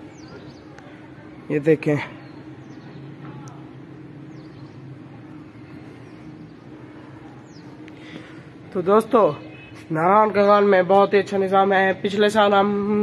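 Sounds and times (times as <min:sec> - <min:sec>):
low hum of distant machinery: 0:00.0 - 0:13.0.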